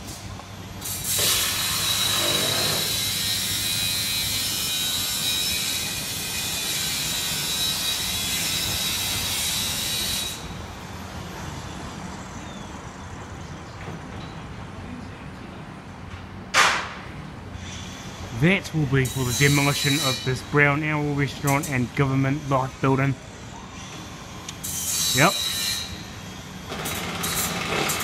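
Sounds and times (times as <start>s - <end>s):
street noise: 0.0s - 28.0s
angle grinder cutting metal: 0.8s - 10.4s, 17.8s - 23.1s.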